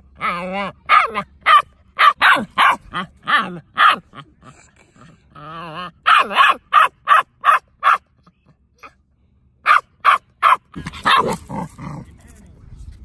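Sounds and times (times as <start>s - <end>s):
puppy barking: 0.2s - 4.3s, 5.8s - 8.1s, 9.6s - 11.5s.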